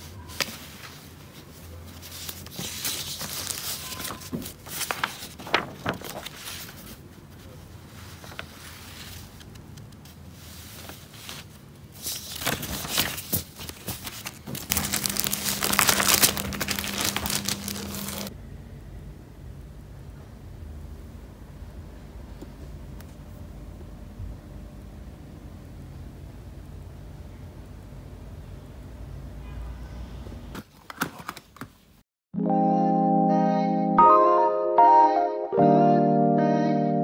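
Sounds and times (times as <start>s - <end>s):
paper rustling and crinkling: 0.0s - 18.3s.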